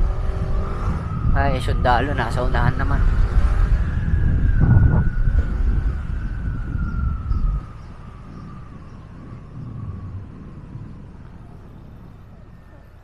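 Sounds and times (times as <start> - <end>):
motorcycle riding: 0.0 - 11.7
wind rumble on microphone: 0.0 - 13.0.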